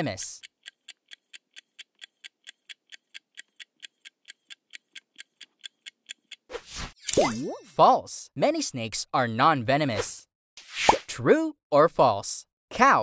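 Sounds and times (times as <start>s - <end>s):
fast clock ticking: 0.0s - 6.5s.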